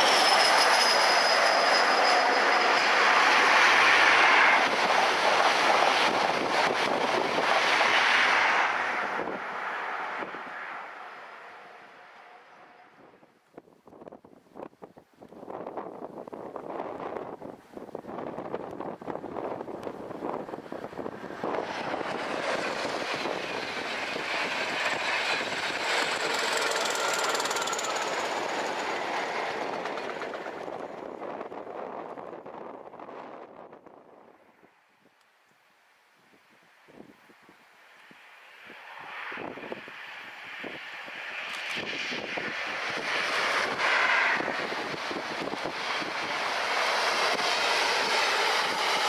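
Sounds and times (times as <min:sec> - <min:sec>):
thin high whine: 0:00.0 - 0:04.6
train passing at speed: 0:00.0 - 0:14.7, 0:15.4 - 0:34.8, 0:37.6 - 0:49.0
diesel locomotive engines: 0:00.0 - 0:34.6, 0:37.7 - 0:49.0
wind buffeting microphone: 0:03.8 - 0:10.6, 0:13.0 - 0:34.4, 0:41.6 - 0:49.0
wheels clattering on rails: 0:21.6 - 0:31.7.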